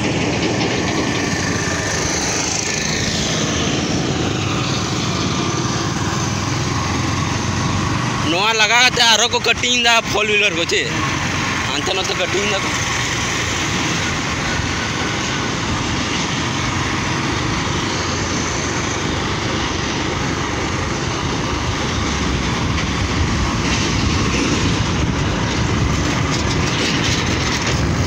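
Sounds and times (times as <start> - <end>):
motorbike engine and road noise: 0.0 - 28.0
wind buffeting microphone: 12.8 - 28.0.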